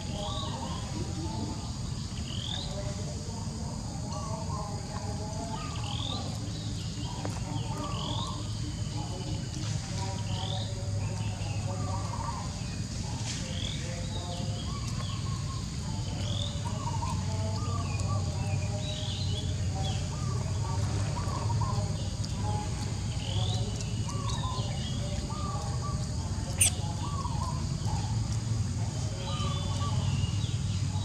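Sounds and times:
high insect hum: 0.0s - 31.0s
bird chirps: 26.6s - 27.5s.

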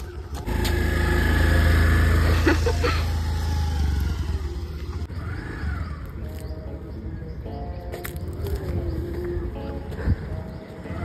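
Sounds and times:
scooter engine running: 0.0s - 6.6s.

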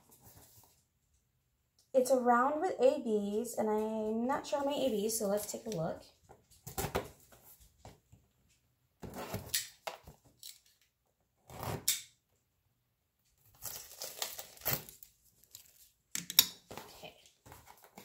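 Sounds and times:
cardboard tearing: 13.4s - 15.9s
tape being slit: 13.5s - 16.5s.

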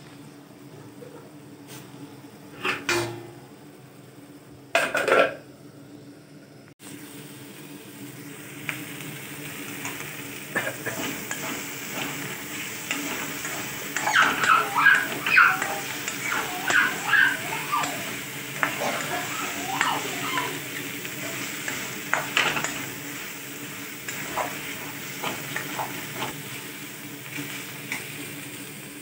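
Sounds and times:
mushrooms sizzling in oil: 6.0s - 29.0s.

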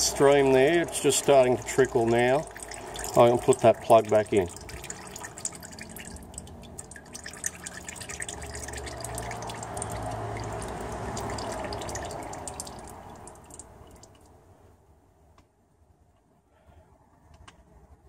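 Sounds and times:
fluid trickling and dripping: 0.0s - 14.4s.

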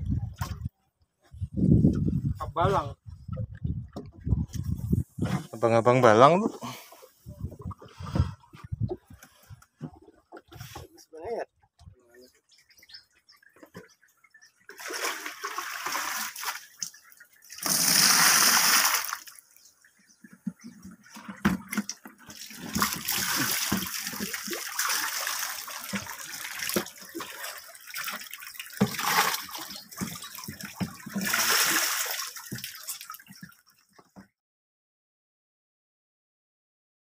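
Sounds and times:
water splashing and pouring: 0.0s - 0.7s, 13.5s - 19.7s, 20.5s - 33.9s.

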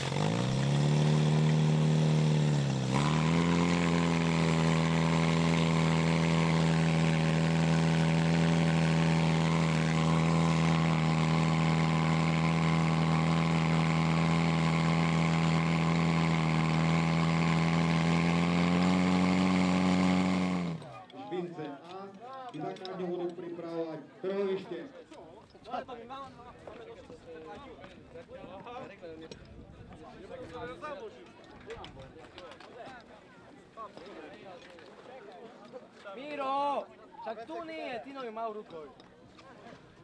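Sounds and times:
pump engine running at high revs: 0.0s - 21.0s.

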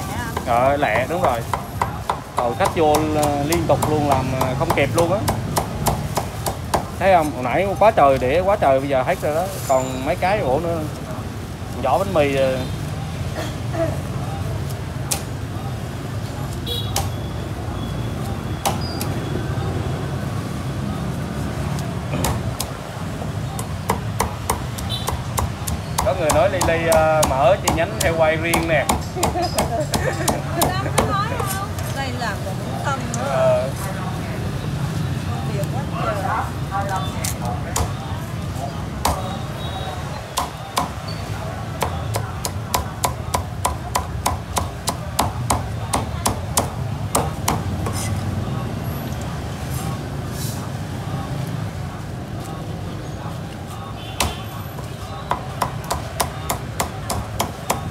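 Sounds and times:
cleaver chopping on wooden block: 0.4s - 6.9s, 23.6s - 31.6s, 41.8s - 48.1s, 55.3s - 57.9s.

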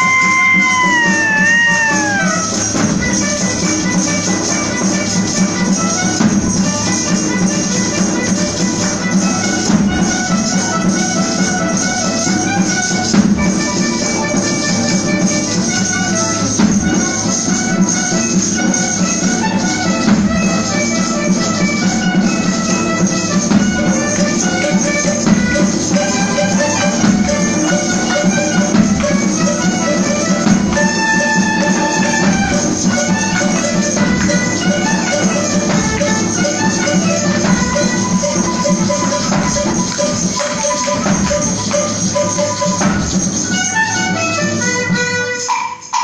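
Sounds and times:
guitars and flutes playing: 0.0s - 16.4s, 17.1s - 46.0s
shaker keeping a beat: 0.0s - 46.0s.

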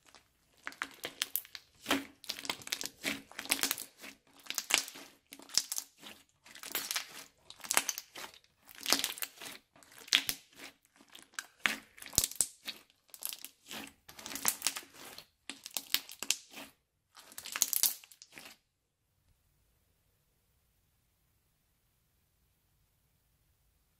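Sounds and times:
crunchy slime squishes: 0.0s - 18.7s.

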